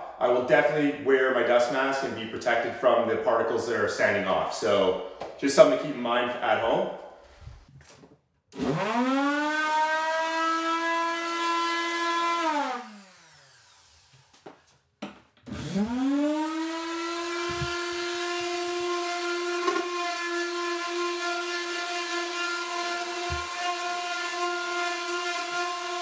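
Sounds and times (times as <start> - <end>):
orbital sander whining: 8.6 - 14.6, 15.5 - 26.0.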